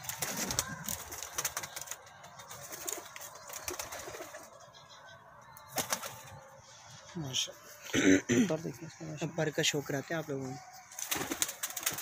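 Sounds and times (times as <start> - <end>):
pigeons cooing: 0.0 - 9.4.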